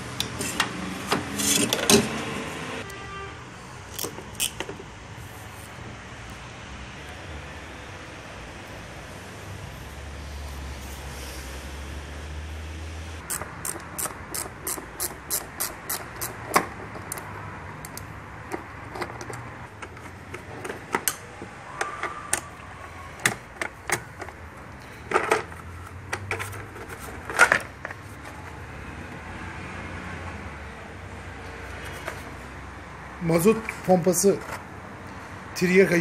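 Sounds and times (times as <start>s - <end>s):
hand tools clicking on metal: 13.2s - 21.2s.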